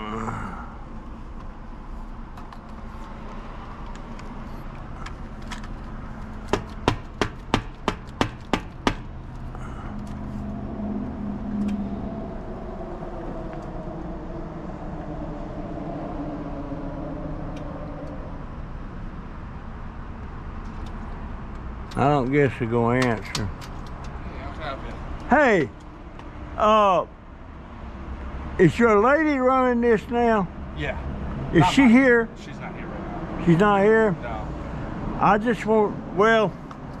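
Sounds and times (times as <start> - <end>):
knocking on a door: 6.5 - 9.0.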